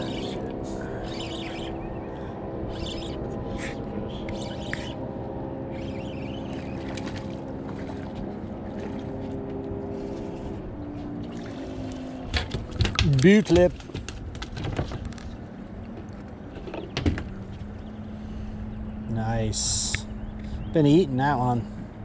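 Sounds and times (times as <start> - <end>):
outboard motor idling: 0.0 - 12.8.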